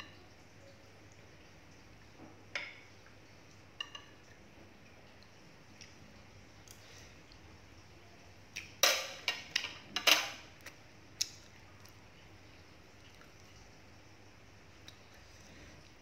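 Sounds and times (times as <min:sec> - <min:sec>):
cutlery clinking on a plate: 0:08.8 - 0:10.4.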